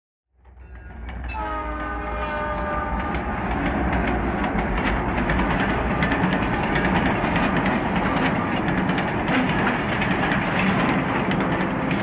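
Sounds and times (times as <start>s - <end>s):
train rumbling on rails: 0.4s - 12.0s
train horn: 1.3s - 3.7s.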